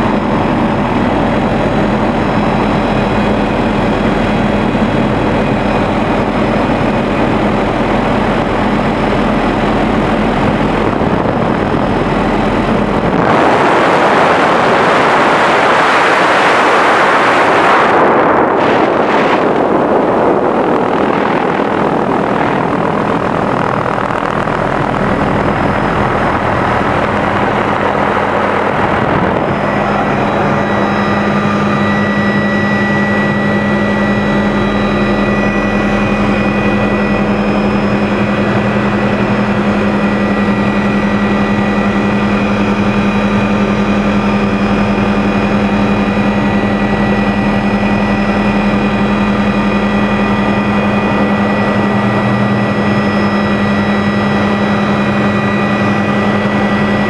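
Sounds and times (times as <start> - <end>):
helicopter engine and rotors drone: 0.0 - 57.0
high whine: 0.0 - 57.0
rushing noise: 12.4 - 40.0.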